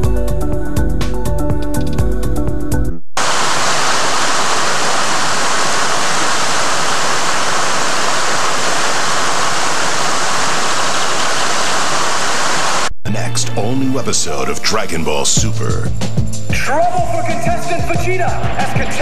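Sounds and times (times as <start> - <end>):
waterfall rushing into stream pool: 3.2 - 12.9.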